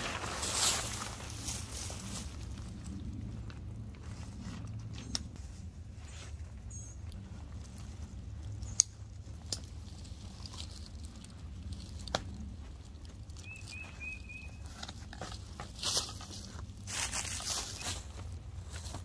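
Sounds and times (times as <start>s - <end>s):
rustling in dry leaves: 0.0s - 19.0s
steady low rumble: 0.0s - 19.0s
bird chirping: 13.4s - 14.8s.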